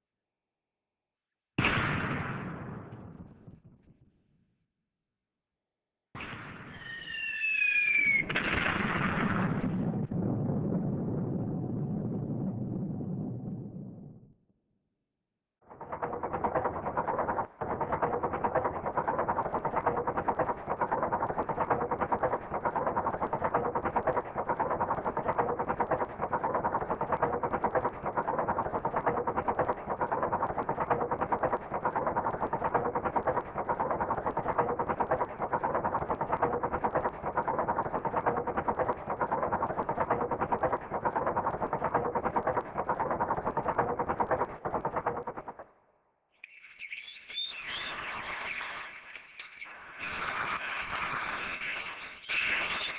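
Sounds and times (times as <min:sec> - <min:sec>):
dense steady crackling: 0:15.7 - 0:45.6, 0:47.1 - 0:52.9.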